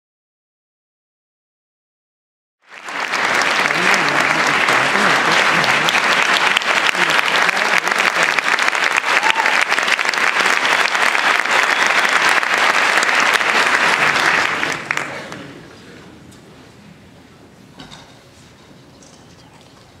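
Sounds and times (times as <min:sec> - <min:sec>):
audience applauding: 0:02.6 - 0:15.5.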